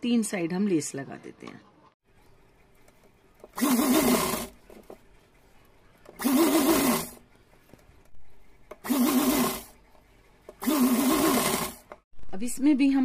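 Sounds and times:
sewing machine stitching: 0:03.5 - 0:04.6, 0:06.2 - 0:07.2, 0:08.7 - 0:09.8, 0:10.5 - 0:12.1.

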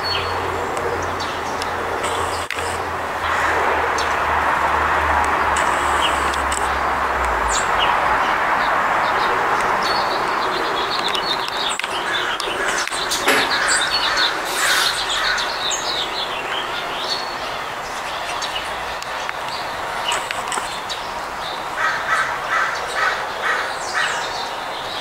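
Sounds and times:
songbirds chirping: 0:00.0 - 0:25.0
steady background noise: 0:00.0 - 0:25.0.

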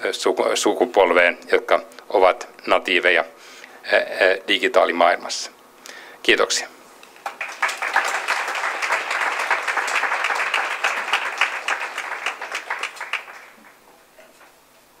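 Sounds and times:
small audience applauding: 0:07.2 - 0:14.5.

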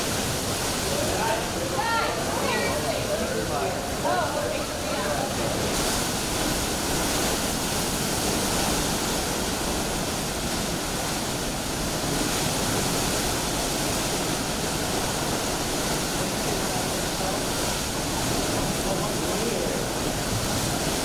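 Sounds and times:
driving rain: 0:00.0 - 0:21.0
hurricane wind: 0:00.0 - 0:21.0.

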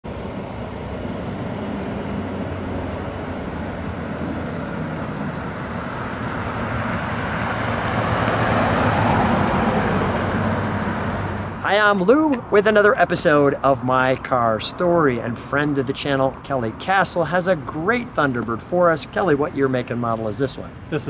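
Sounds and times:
car engine humming: 0:00.1 - 0:21.0.

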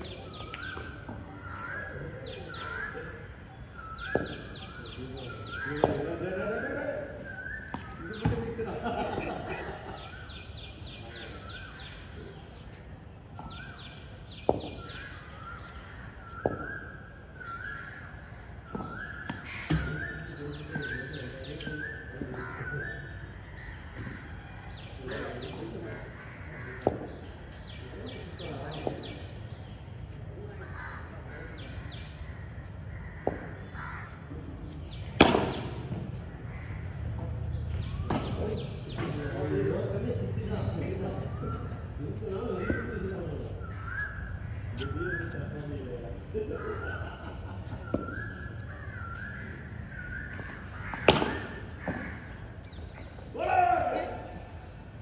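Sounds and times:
birds chirping and whistling: 0:00.0 - 0:09.0, 0:09.8 - 0:25.7, 0:34.7 - 0:54.8
cricket ball knocks: 0:35.2 - 0:36.0, 0:50.9 - 0:52.0.

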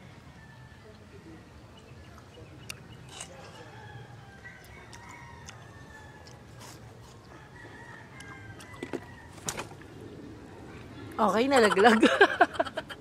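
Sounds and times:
rooster crowing: 0:03.4 - 0:06.6, 0:07.2 - 0:09.4
watermelon being bitten and chewed: 0:04.5 - 0:09.0.

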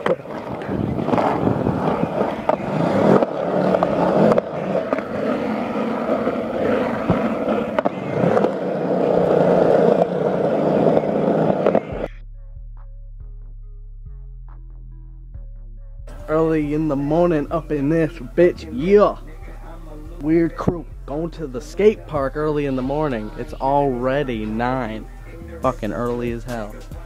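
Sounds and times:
skateboard wheels rolling on concrete: 0:00.0 - 0:12.1.

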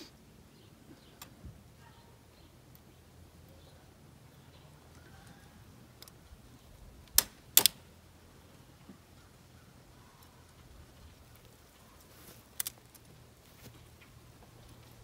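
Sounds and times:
sharp clicks of wire: 0:07.0 - 0:07.9, 0:12.5 - 0:13.1.

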